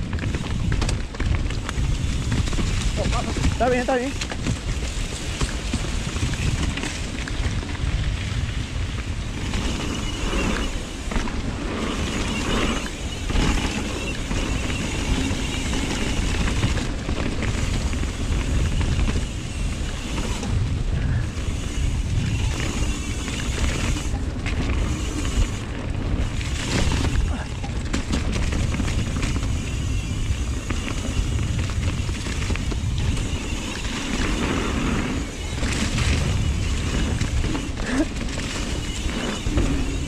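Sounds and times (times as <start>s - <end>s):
bike rattling over rocks: 0.0s - 40.0s
wind rumbling on microphone: 0.0s - 40.0s.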